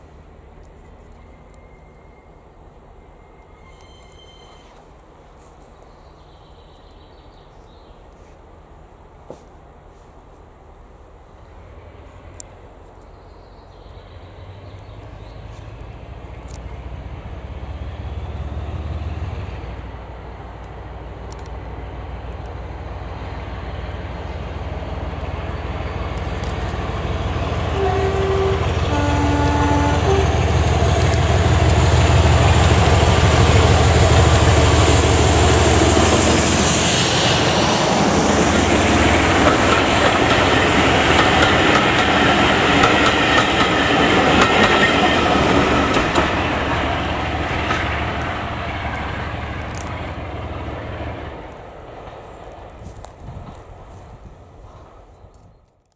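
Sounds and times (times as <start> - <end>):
diesel locomotive engine: 0.0 - 55.7
two-tone train horn: 3.6 - 4.8, 27.7 - 30.7.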